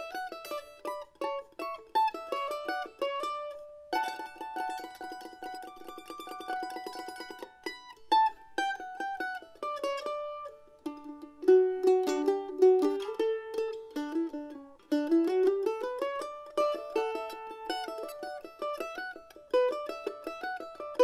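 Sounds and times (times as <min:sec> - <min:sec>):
plucked string instrument melody: 0:00.0 - 0:21.0.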